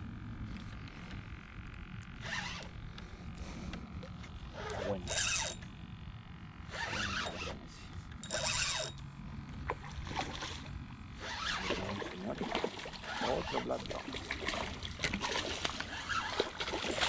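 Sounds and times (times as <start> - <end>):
fishing reel drag buzzing: 1.1 - 9.1, 10.6 - 13.8, 15.8 - 17.0
water splashing: 11.6 - 17.0.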